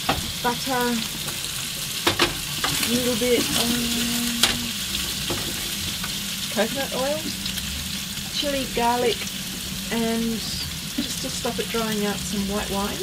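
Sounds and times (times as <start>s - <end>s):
food sizzling in butter in a pan: 0.0s - 13.0s.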